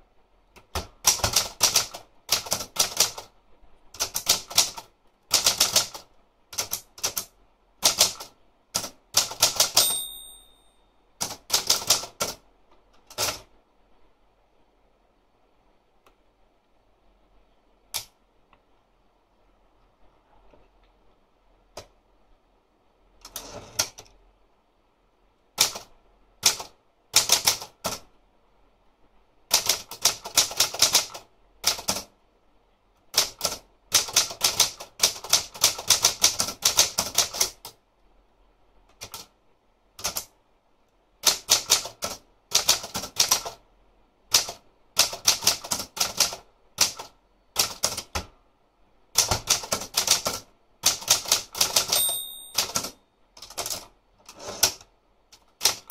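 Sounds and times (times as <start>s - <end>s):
typewriter keys clacking: 6.6s - 10.2s, 49.2s - 54.8s, 55.4s - 55.9s.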